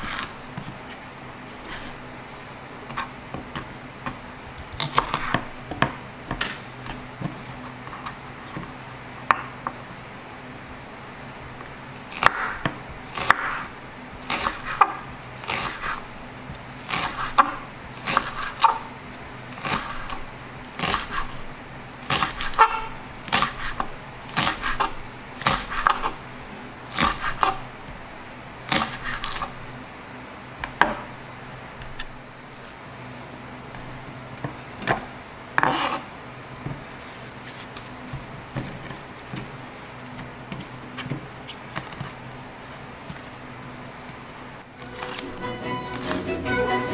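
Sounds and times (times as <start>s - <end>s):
faint steady hum: 0.0s - 46.9s
knife chopping on wooden board: 12.2s - 16.0s, 16.8s - 18.9s.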